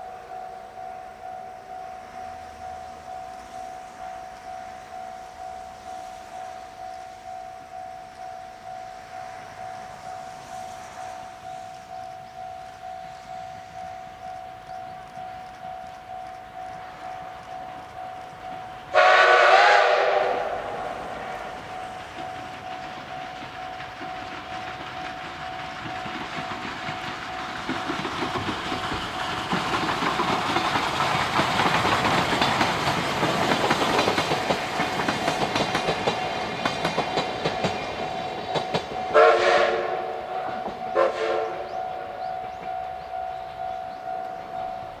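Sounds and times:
steam locomotive passing: 0:00.0 - 0:45.0
steam whistle blasts: 0:18.9 - 0:21.8, 0:39.1 - 0:42.2.

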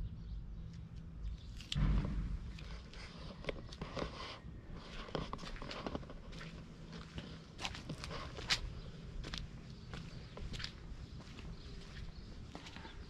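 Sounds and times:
low steady rumble: 0:00.1 - 0:03.6
footsteps on stone paving: 0:04.8 - 0:13.0.

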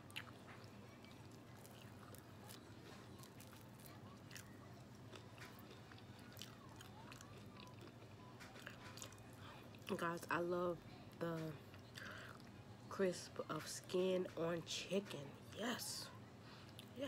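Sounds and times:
chewing crispy fried chicken: 0:00.0 - 0:12.6, 0:16.4 - 0:17.0.

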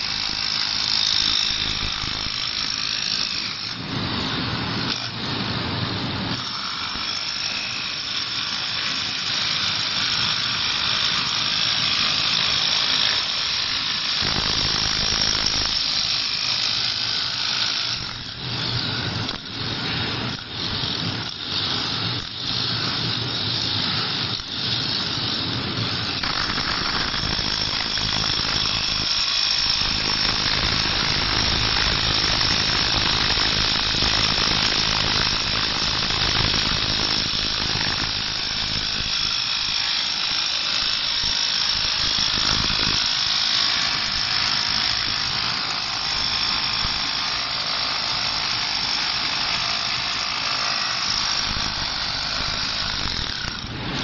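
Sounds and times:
chisel chipping concrete: 0:00.0 - 0:03.9, 0:06.3 - 0:54.0
concrete breaker hammering: 0:26.1 - 0:54.0.

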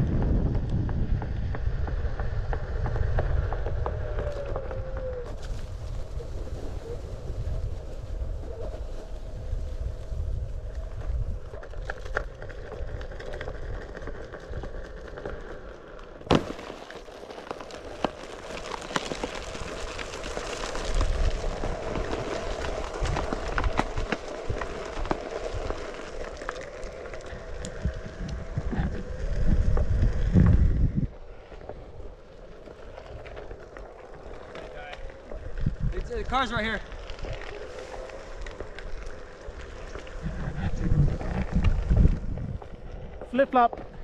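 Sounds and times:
wind buffeting microphone: 0:00.0 - 0:15.2, 0:18.2 - 0:44.0
electric skateboard motor hum: 0:00.0 - 0:44.0
tyre crackling over wood chips: 0:11.6 - 0:30.3, 0:31.3 - 0:44.0
sharp crack: 0:16.1 - 0:27.8.

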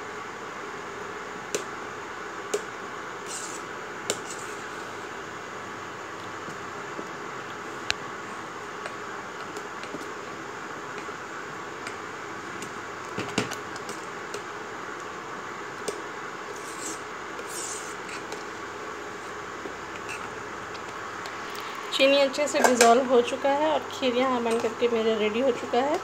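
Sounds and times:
fan noise: 0:00.0 - 0:26.0
metal spoon stirring in pot: 0:16.5 - 0:18.4.

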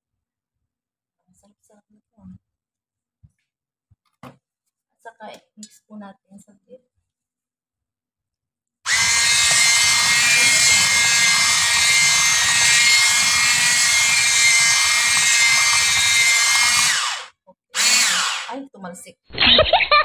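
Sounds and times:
electric hand mixer whining: 0:08.9 - 0:18.6.

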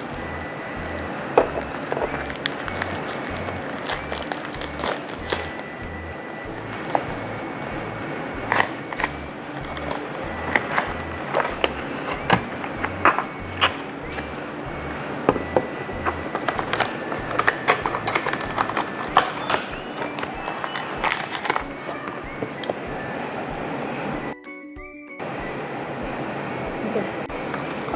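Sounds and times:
packaging crinkling: 0:00.0 - 0:05.8, 0:08.5 - 0:14.3, 0:16.1 - 0:22.7.

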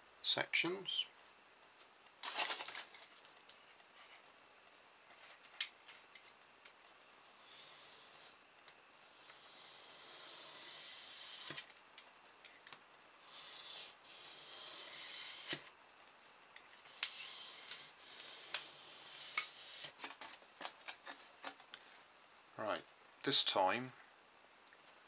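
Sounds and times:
blade cutting foam: 0:09.2 - 0:11.7, 0:13.2 - 0:15.7, 0:16.9 - 0:20.0.

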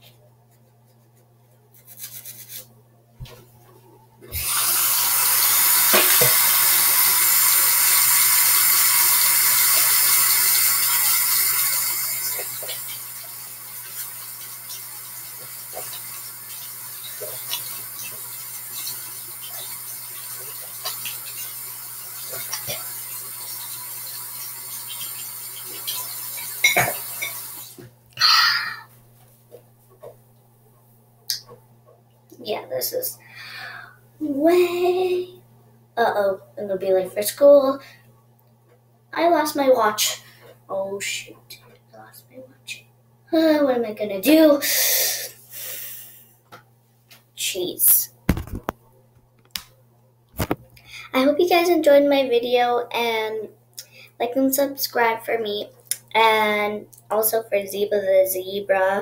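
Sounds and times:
toothbrush scrubbing: 0:00.5 - 0:02.7
tap water running into sink: 0:04.3 - 0:27.8.

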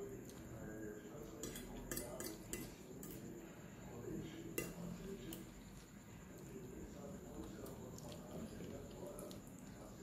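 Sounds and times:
fork clinking on a plate: 0:01.3 - 0:03.4, 0:04.5 - 0:05.5.

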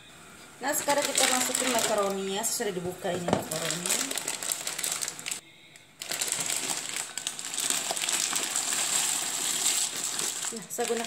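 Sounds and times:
pasta pouring into water: 0:00.6 - 0:02.3, 0:03.5 - 0:05.4, 0:06.0 - 0:11.0
plastic bag crinkling: 0:00.6 - 0:05.4, 0:06.0 - 0:11.0.

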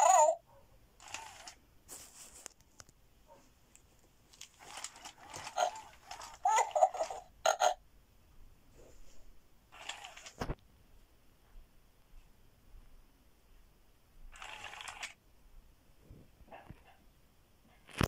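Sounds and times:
electronic toy animal calls: 0:05.2 - 0:07.8.

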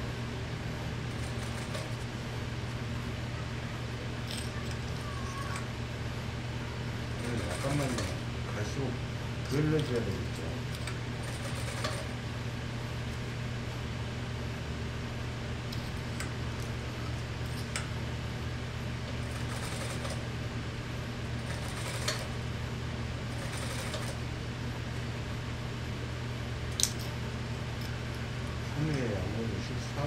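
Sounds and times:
sewing machine motor hum: 0:00.9 - 0:02.7, 0:07.0 - 0:12.4, 0:15.7 - 0:20.4, 0:21.2 - 0:24.3.

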